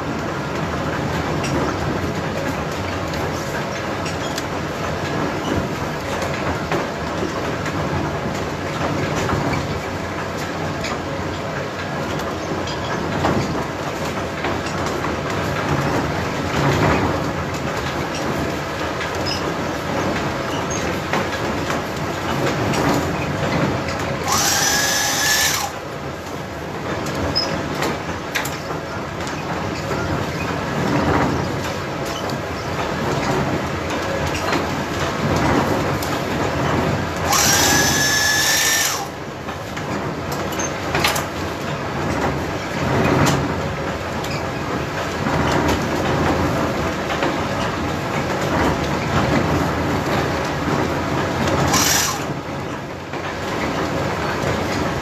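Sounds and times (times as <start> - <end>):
milling machinery clatter: 0.1 - 55.0
sack-sewing machine whine: 24.2 - 25.8, 37.2 - 39.2, 51.5 - 52.4.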